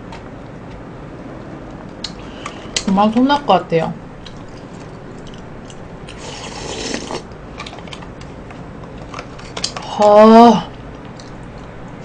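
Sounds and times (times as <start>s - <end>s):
spoon scraping shaved ice: 6.2s - 7.3s.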